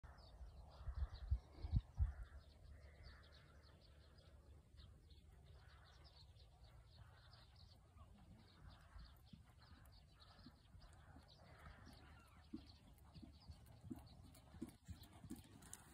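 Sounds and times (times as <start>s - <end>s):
wind buffeting microphone: 0.6s - 2.5s
small bird chirping: 5.2s - 15.9s.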